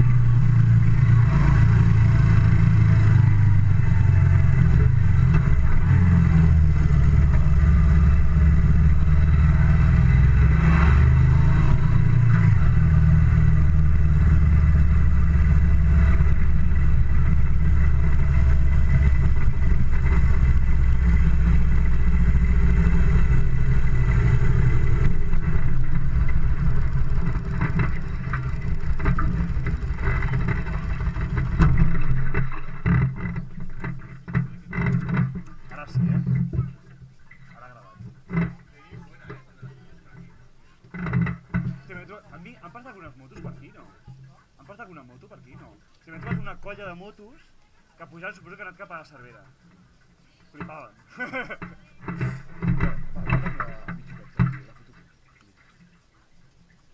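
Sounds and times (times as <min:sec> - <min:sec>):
motorcycle engine running: 0:00.0 - 0:44.6, 0:49.4 - 0:55.2.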